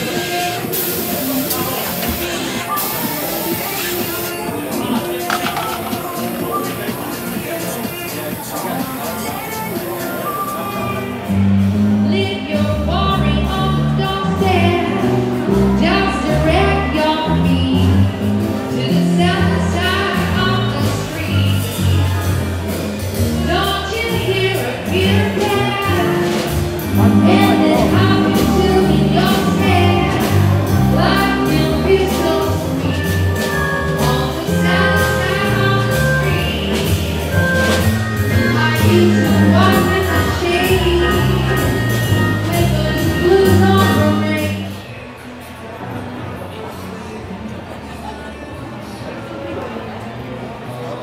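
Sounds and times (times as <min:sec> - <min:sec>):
pop music with singing: 0:00.0 - 0:44.8
live band playing: 0:00.0 - 0:45.2
person singing: 0:23.4 - 0:44.8
strong bass notes: 0:24.2 - 0:44.4.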